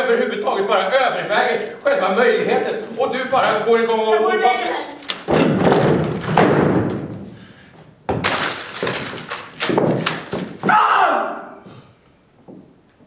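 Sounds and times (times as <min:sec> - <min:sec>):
crashes and bangs of objects thrown: 0:05.2 - 0:07.3
furniture knocked over: 0:05.2 - 0:07.3, 0:08.1 - 0:10.7.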